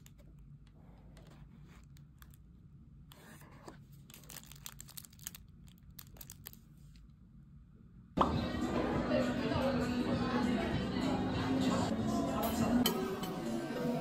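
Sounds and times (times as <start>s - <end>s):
plastic film wrapper crinkling: 4.0s - 6.7s.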